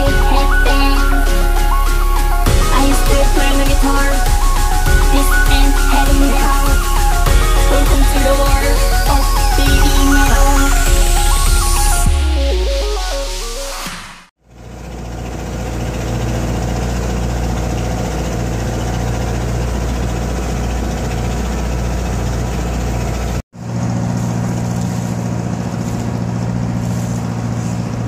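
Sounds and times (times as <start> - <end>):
boat engine running: 0.0 - 13.4, 14.7 - 28.0
higher-pitched hum: 0.0 - 14.3
music: 0.0 - 14.3.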